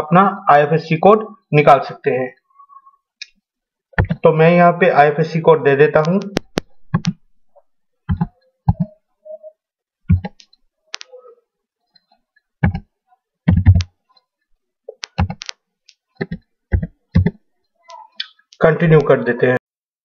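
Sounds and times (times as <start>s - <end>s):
computer keyboard key presses: 15.0s - 15.5s.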